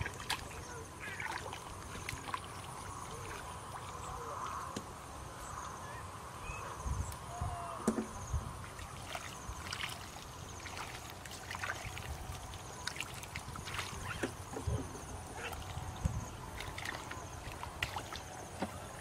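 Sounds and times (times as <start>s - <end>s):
hands splashing in muddy water: 0.0s - 4.0s, 8.8s - 14.2s.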